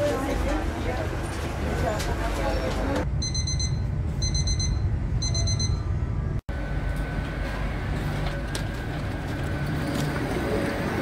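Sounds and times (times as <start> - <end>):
train rumble: 0.0 - 11.0
rapid high door warning beeps: 3.2 - 6.0.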